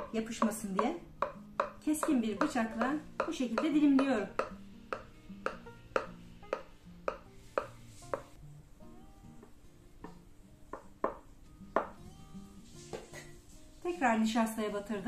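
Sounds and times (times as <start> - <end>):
knife tapping glass dish: 0.0 - 8.4
soft background music: 0.0 - 15.0.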